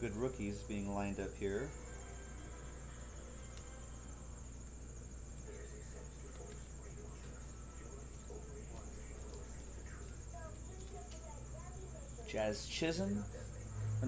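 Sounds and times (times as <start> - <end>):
cards being handled: 4.6 - 11.3.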